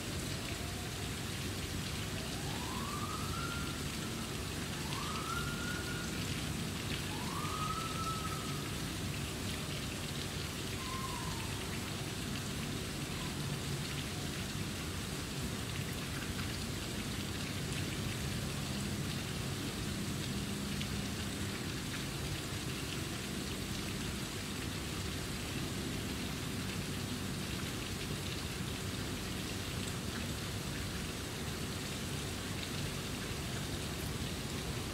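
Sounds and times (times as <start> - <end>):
steady outdoor hiss: 0.0 - 34.9
short falling whistle-like call: 7.2 - 8.5, 10.8 - 11.6.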